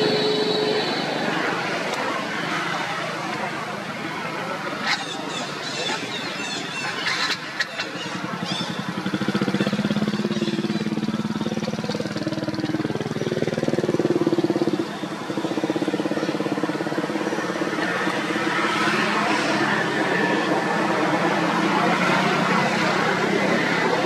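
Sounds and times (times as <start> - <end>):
engine running steadily: 6.0 - 24.0.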